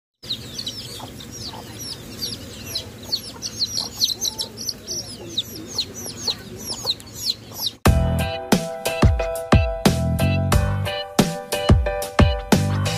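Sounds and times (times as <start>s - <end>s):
ducklings peeping: 0.2s - 7.9s
loud music: 7.8s - 12.9s.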